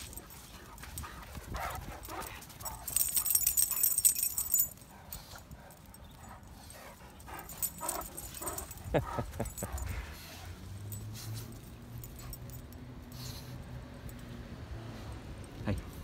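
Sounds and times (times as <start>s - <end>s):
harness and collar tags jingling: 0.0s - 16.0s.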